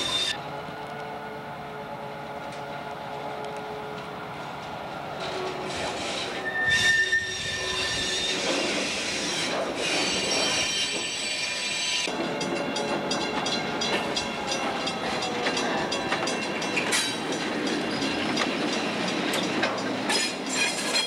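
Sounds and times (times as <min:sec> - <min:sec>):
train wheels squealing on rails: 0:00.0 - 0:00.4, 0:05.2 - 0:21.0
rumble of rolling train: 0:00.0 - 0:21.0.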